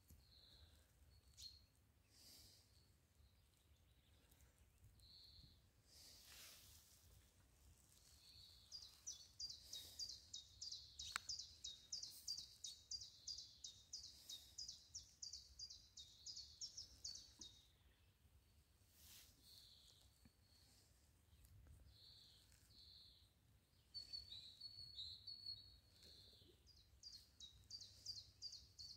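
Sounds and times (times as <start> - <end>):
songbird singing falling notes: 8.0 - 14.0.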